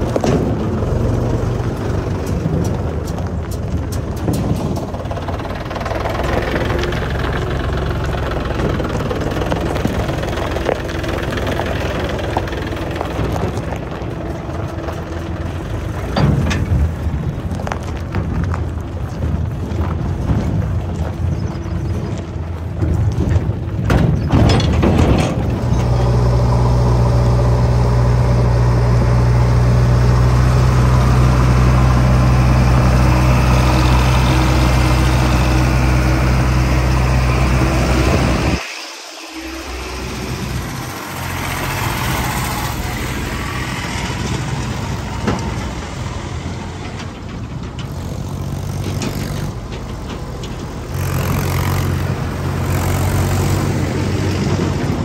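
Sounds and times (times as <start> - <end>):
diesel engines running: 0.0 - 55.0
sharp knocks and clanks: 16.0 - 17.1, 22.2 - 26.2.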